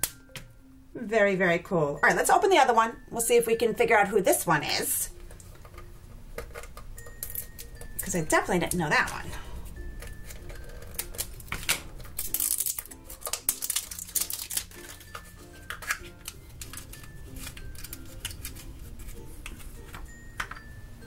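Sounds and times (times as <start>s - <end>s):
background music: 0.0s - 21.0s
plastic and foil crackling: 5.3s - 20.2s
scissors snipping foil: 6.4s - 8.1s, 9.9s - 20.0s.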